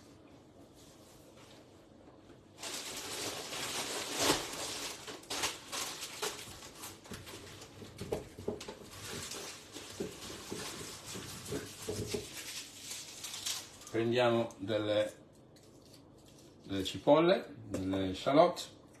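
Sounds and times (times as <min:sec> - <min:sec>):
rustling: 0:02.6 - 0:14.0.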